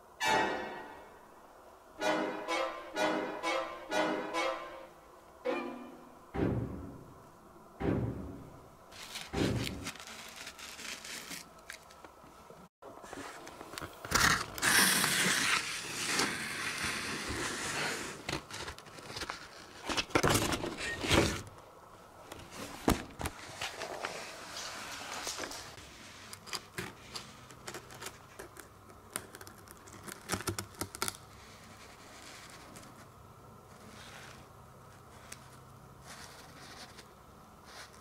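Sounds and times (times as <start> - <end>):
loud knocks: 6.4 - 7.1, 7.8 - 8.6
crackling scraping noise: 8.9 - 21.5.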